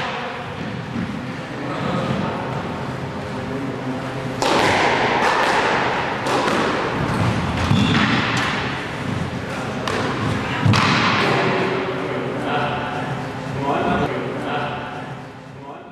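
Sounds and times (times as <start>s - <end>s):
squash ball knocks: 4.4s - 8.7s.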